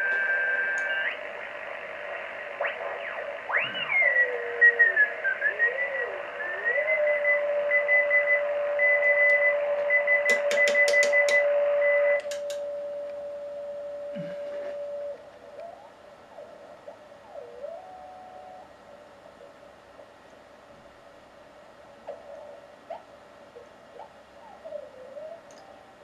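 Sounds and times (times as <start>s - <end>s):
radio band hiss: 0.0s - 26.0s
morse code signal: 3.5s - 15.2s
steady carrier tone: 7.4s - 20.2s
sharp clicks: 10.2s - 11.4s, 12.2s - 12.6s.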